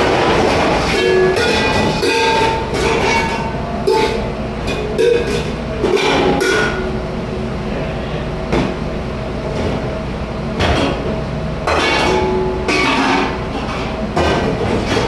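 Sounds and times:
dishes and kitchenware clattering: 0.0 - 6.9, 11.7 - 15.0
mechanical rumble: 0.0 - 15.0.

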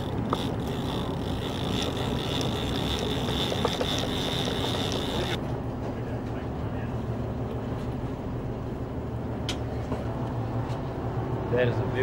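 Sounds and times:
fishing reel whining: 0.0 - 5.4
reel clicks: 0.0 - 5.4
boat engine rumble: 0.0 - 12.0.

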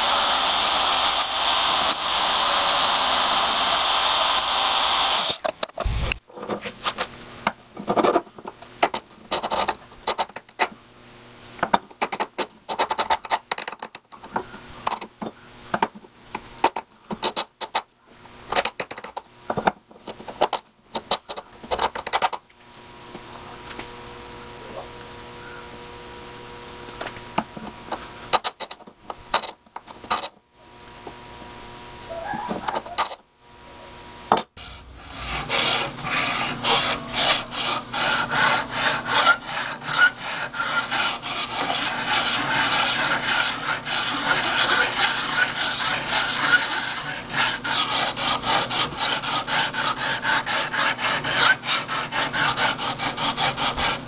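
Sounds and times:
bandsaw cutting metal: 0.0 - 6.2, 34.6 - 54.0
faint steady hum: 14.0 - 54.0
steel scraping and knocking on wood: 34.3 - 53.9.

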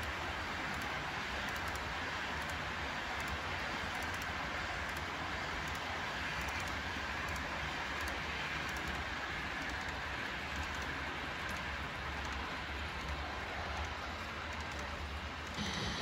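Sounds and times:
model train rolling rumble: 0.0 - 16.0
wheels ticking over rail joints: 0.0 - 16.0.

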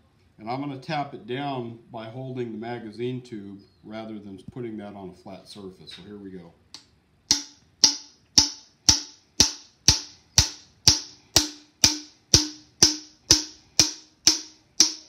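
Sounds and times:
hammer tapping on metal: 7.3 - 15.0.

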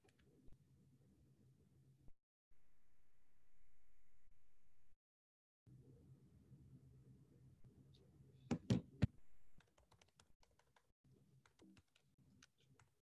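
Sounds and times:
computer keyboard typing: 9.6 - 13.0.

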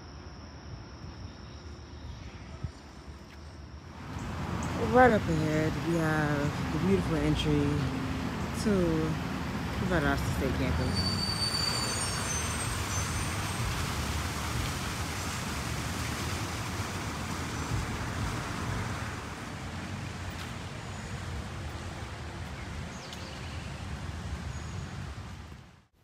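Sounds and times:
outdoor rushing noise: 7.8 - 25.9.

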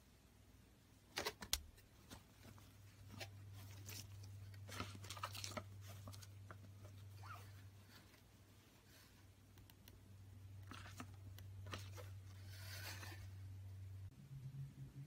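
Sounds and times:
faint low hum: 0.0 - 15.0
plastic packaging rustling: 2.0 - 8.2.

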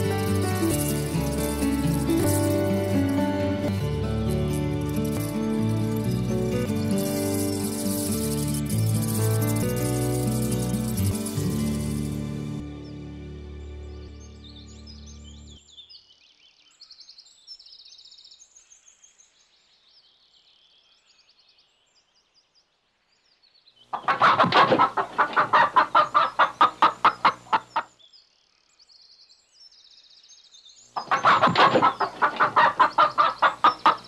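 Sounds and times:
small birds chirping: 0.0 - 13.0, 13.6 - 34.0
hens clucking: 24.0 - 27.9, 31.0 - 34.0.

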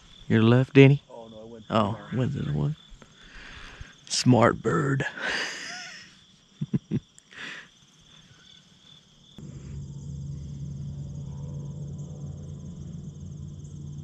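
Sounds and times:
insects trilling: 0.0 - 14.0
low steady noise with hum: 9.4 - 14.0.

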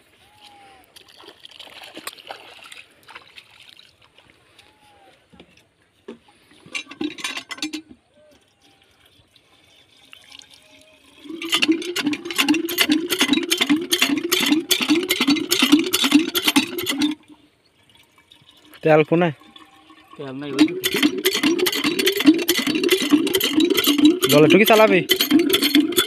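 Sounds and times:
water splash: 1.0 - 4.1
water gurgling in hand pump: 6.5 - 26.0
hand pump strokes: 6.6 - 26.0.

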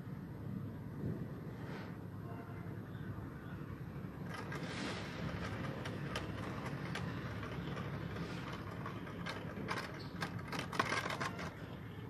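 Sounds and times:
spinning top clicking and rattling: 4.2 - 11.8
spinning top whirring: 4.2 - 11.8.

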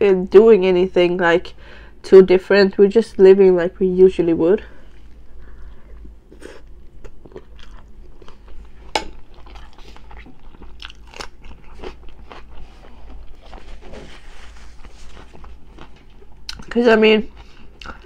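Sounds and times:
person chewing crunchy food: 4.9 - 16.7, 17.3 - 18.0.

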